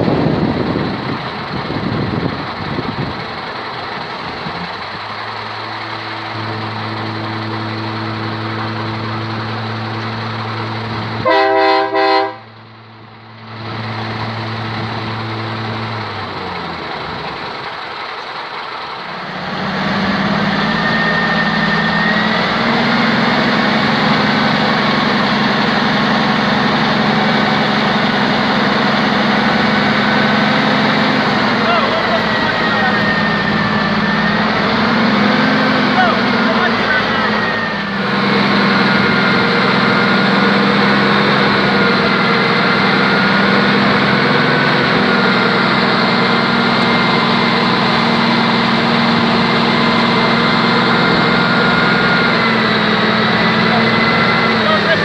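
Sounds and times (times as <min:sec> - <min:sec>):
diesel truck engine idling: 0:00.0 - 0:55.0
engine speeding up: 0:00.0 - 0:55.0
truck horn blasts: 0:05.6 - 0:10.1, 0:11.2 - 0:12.6.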